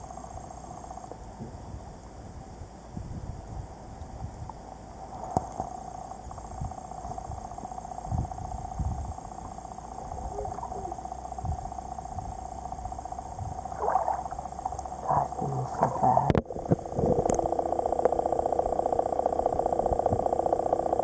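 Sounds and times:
muffled underwater hum: 0.0s - 21.0s.

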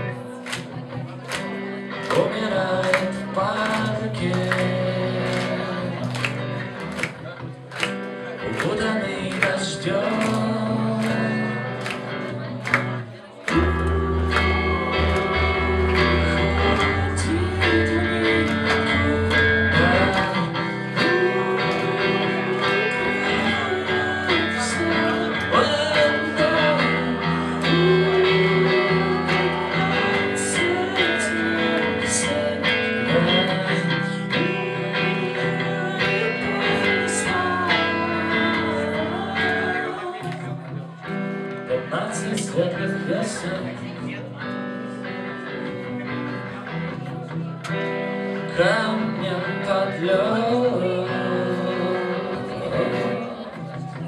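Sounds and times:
live rock band playing: 0.0s - 54.0s
person singing: 0.0s - 54.0s
heavy bass notes: 9.9s - 38.2s.

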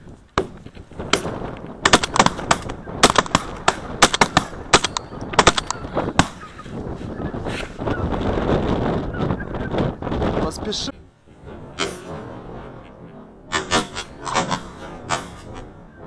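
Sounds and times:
shotgun shots: 1.2s - 6.4s
geese honking: 11.7s - 16.0s.

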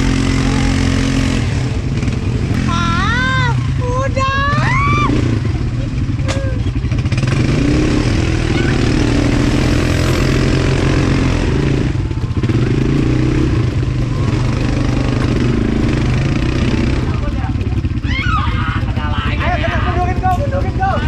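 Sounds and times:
atv engine running: 0.0s - 21.0s.

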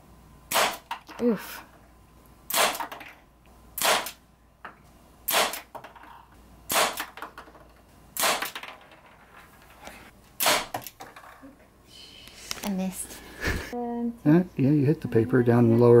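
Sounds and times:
air pistol shots: 0.5s - 1.0s, 2.5s - 3.0s, 3.8s - 4.2s, 5.3s - 5.8s, 6.7s - 7.2s, 8.2s - 8.6s, 10.4s - 10.9s.

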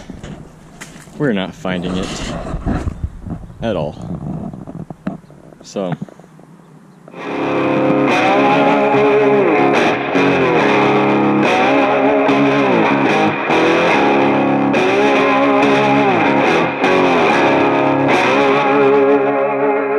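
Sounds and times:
distorted electric guitar bends: 7.1s - 19.9s.

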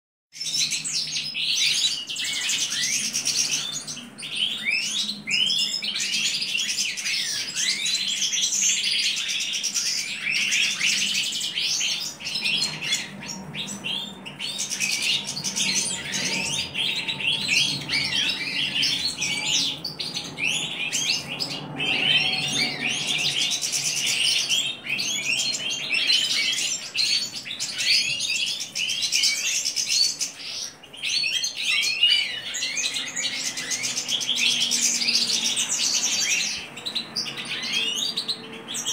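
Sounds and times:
bird twittering chirps and trills: 0.3s - 38.9s.

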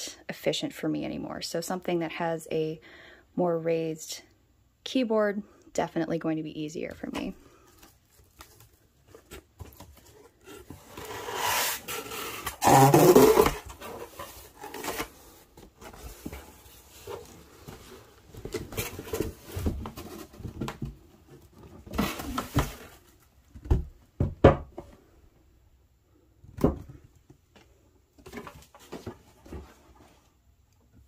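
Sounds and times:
cardboard rustling and scraping: 7.0s - 23.3s, 28.2s - 30.5s.

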